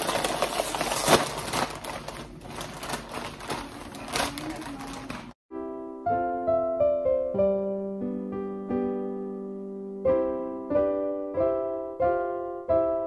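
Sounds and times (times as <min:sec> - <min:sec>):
chip bag crinkling: 0:00.0 - 0:05.4
piano music: 0:05.5 - 0:13.0.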